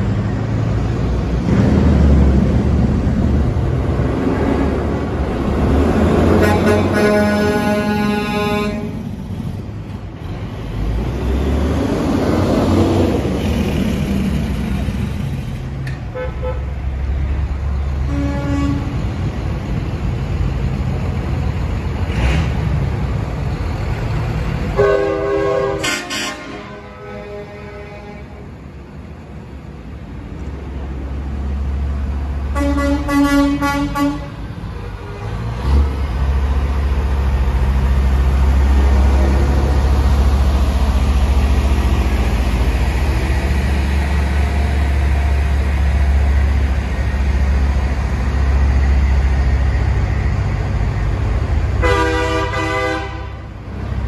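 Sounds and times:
diesel truck engine rumble: 0.0s - 54.0s
truck air horn: 6.3s - 9.0s, 16.1s - 16.7s, 18.0s - 19.0s, 24.8s - 28.5s, 32.5s - 35.3s, 51.8s - 53.5s.

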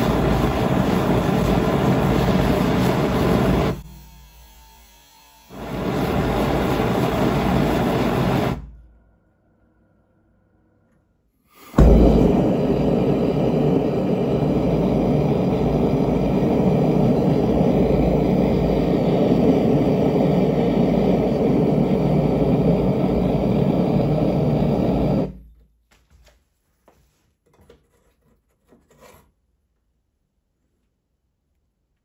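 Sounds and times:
gas burner roaring: 0.0s - 3.9s, 5.5s - 8.9s, 11.7s - 25.4s
faint handling sounds: 25.6s - 29.4s.

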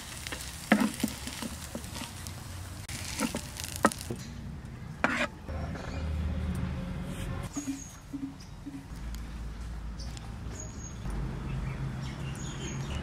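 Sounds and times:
spatula scraping a pan: 0.0s - 4.1s, 5.0s - 5.9s.

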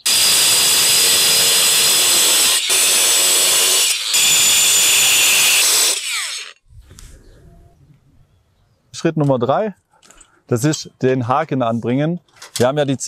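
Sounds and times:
angle grinder cutting tile: 0.0s - 6.6s.

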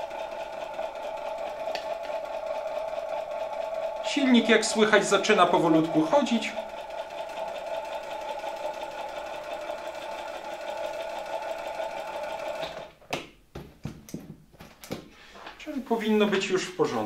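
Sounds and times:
vacuum cleaner motor whining: 0.0s - 12.9s.

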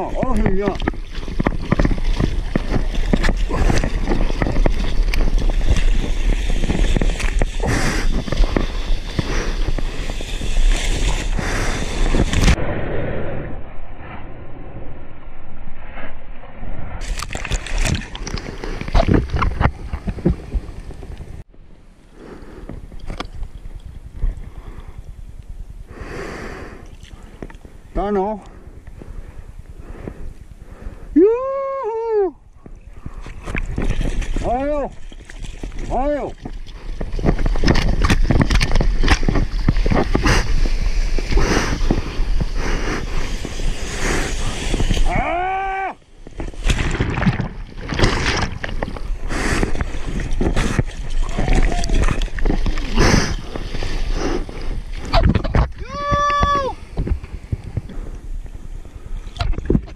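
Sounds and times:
seawater splashing: 32.8s - 57.6s.

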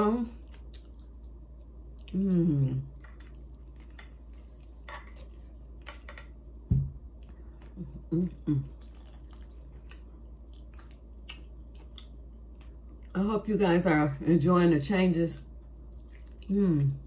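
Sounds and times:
closed-mouth hums: 2.0s - 3.0s, 7.3s - 9.1s.

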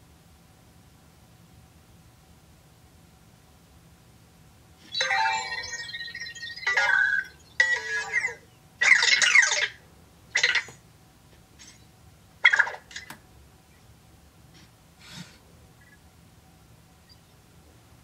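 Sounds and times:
robot electronic chirps and beeps: 4.9s - 9.6s.

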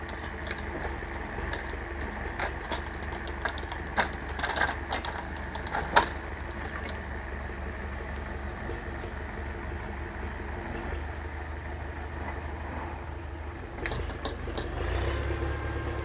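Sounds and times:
wooden clacks and knocks: 0.0s - 7.0s
tractor diesel engine running: 0.0s - 16.0s.

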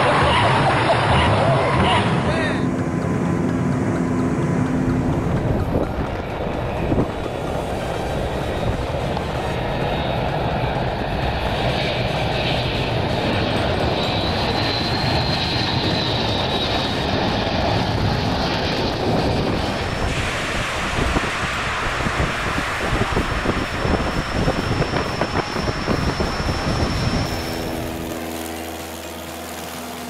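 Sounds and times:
jet engines with turbine whine: 0.0s - 30.0s
rocket-assisted take-off rumble: 0.0s - 30.0s
music: 2.6s - 15.2s.

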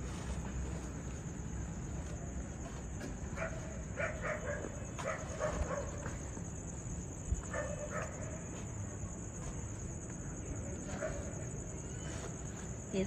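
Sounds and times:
dog barking: 3.4s - 6.2s, 7.4s - 8.3s, 11.0s - 11.3s.

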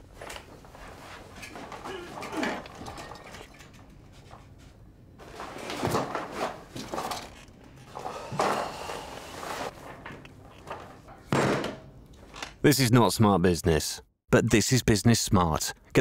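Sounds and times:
person clambering over furniture: 0.0s - 7.2s.

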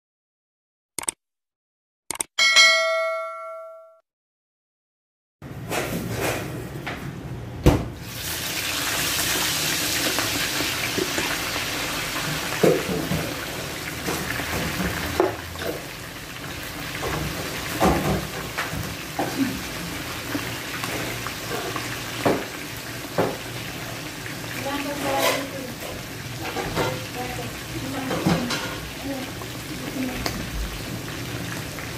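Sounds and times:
food sizzling in hot oil: 8.0s - 31.9s.

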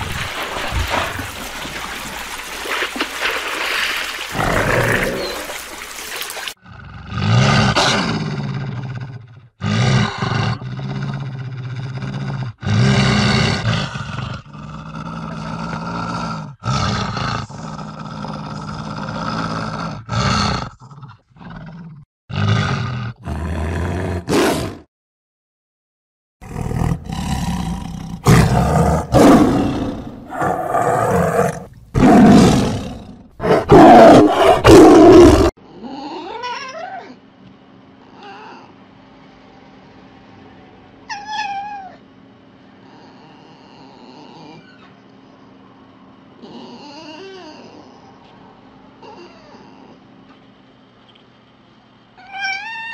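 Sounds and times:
large predator growling and roaring: 0.0s - 5.8s, 6.6s - 24.8s, 26.4s - 36.3s.

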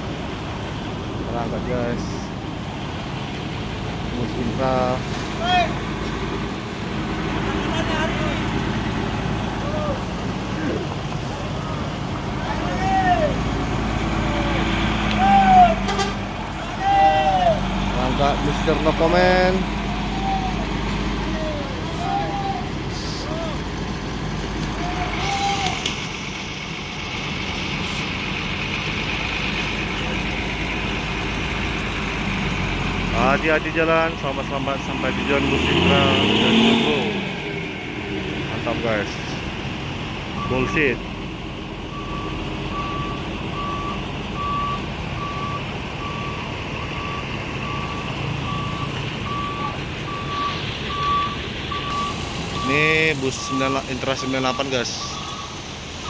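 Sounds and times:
bus diesel engine running: 0.0s - 56.0s
reversing alarm beeping: 41.9s - 55.6s.

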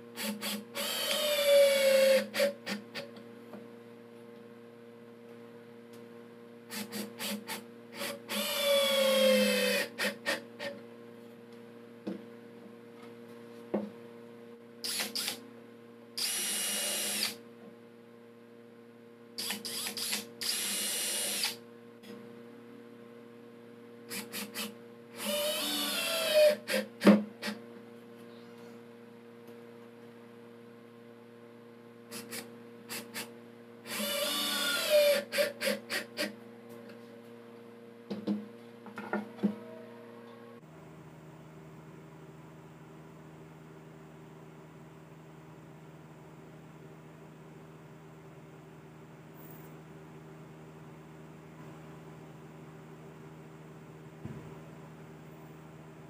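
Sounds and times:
drill driving screws into wood: 0.2s - 2.8s, 6.7s - 10.7s, 14.8s - 15.4s, 16.2s - 17.4s, 19.4s - 21.6s, 24.1s - 27.6s, 32.1s - 33.3s, 33.9s - 36.3s.

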